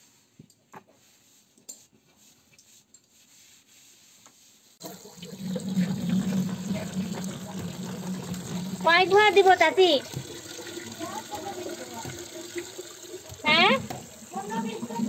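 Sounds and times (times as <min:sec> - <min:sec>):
tap water pouring into plastic bowl: 0:04.8 - 0:15.0.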